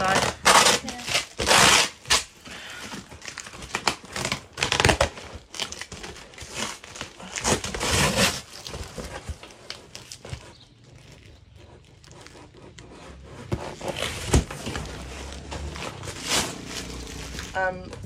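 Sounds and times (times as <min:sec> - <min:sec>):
packing tape ripping: 0:00.0 - 0:17.7
packing paper rustling: 0:00.0 - 0:18.0.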